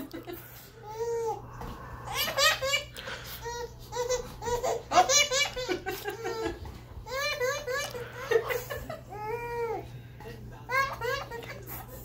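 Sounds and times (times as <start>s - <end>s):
baby giggling: 2.1s - 9.6s.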